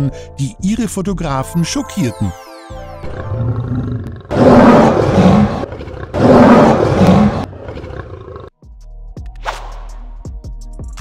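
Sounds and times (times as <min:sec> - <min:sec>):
lion roaring: 0:03.4 - 0:08.5.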